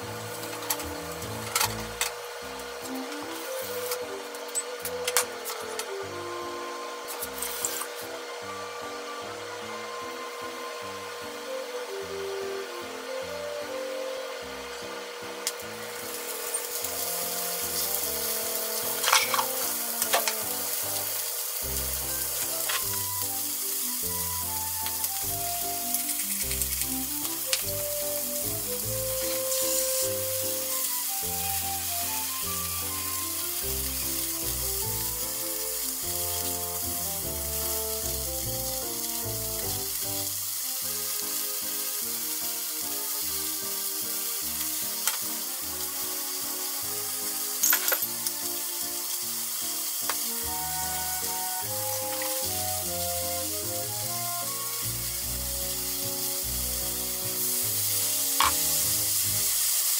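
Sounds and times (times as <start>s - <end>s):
food sizzling in frying pan: 0.0s - 59.9s
light background music: 0.0s - 59.9s.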